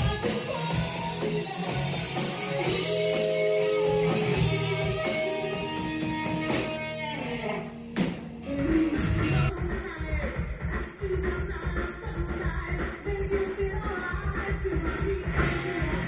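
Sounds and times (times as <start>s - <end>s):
live hard rock band: 0.0s - 9.5s.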